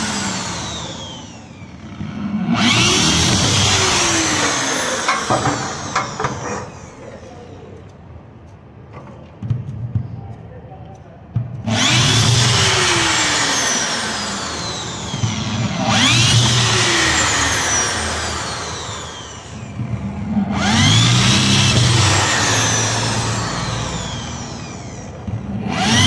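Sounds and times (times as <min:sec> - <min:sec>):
cordless drill boring into metal: 0:00.0 - 0:01.8, 0:02.5 - 0:07.0, 0:11.7 - 0:19.8, 0:20.5 - 0:26.0.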